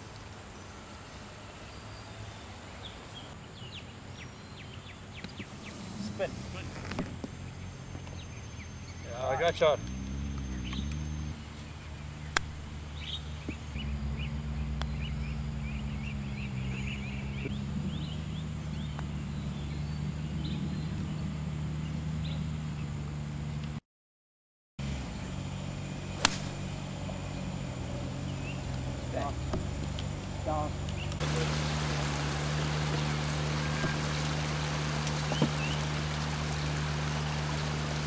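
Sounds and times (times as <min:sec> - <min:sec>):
birds chirping: 0:00.0 - 0:23.0, 0:24.8 - 0:38.0
low mechanical hum: 0:09.9 - 0:23.7, 0:24.8 - 0:38.0
golf club striking ball: 0:26.2 - 0:27.2.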